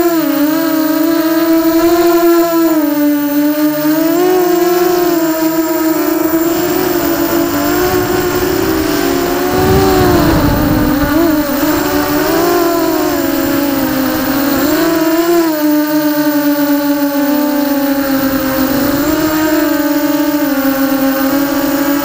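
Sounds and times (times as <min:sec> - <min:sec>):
wind on microphone: 0:06.2 - 0:15.1
drone motors whining: 0:06.3 - 0:13.4.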